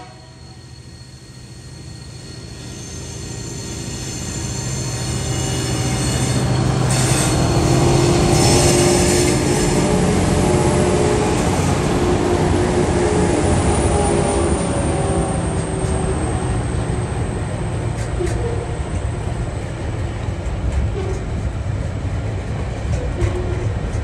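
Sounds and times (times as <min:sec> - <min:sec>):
diesel locomotive passing: 0:00.0 - 0:24.0
high wheel squeal: 0:00.2 - 0:18.8.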